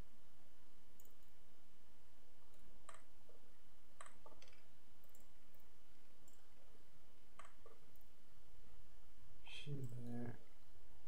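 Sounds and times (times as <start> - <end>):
computer mouse clicking: 7.4 - 8.1.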